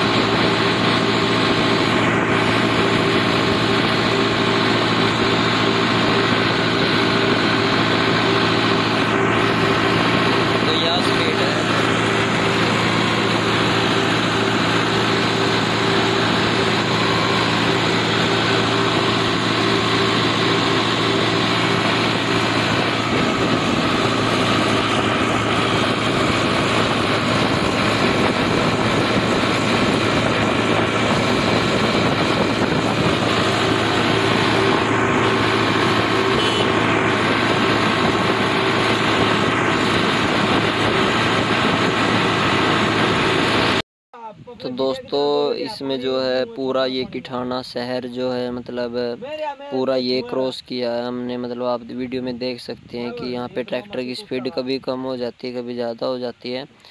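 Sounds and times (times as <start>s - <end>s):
tractor diesel engine running: 0.0s - 43.8s.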